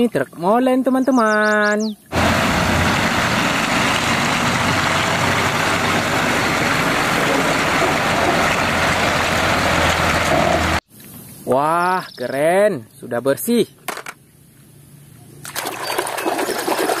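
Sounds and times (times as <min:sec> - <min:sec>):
diesel truck engine driving past: 0:02.1 - 0:10.8
tires on gravel: 0:02.1 - 0:10.8.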